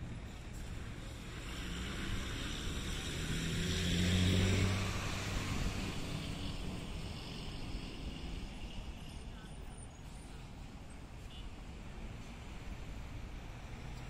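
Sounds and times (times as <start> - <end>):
passing engine: 0.0 - 9.4
background noise: 0.0 - 14.0.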